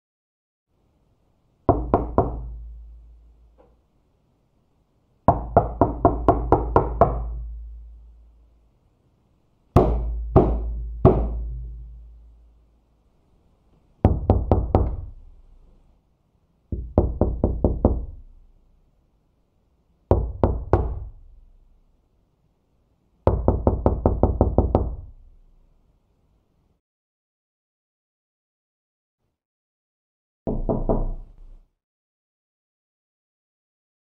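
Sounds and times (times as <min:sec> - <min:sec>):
knocking on a door: 0:01.7 - 0:02.6, 0:05.3 - 0:07.5, 0:09.8 - 0:11.8, 0:14.0 - 0:15.1, 0:16.7 - 0:18.2, 0:20.1 - 0:21.2, 0:23.3 - 0:25.1, 0:30.5 - 0:31.4.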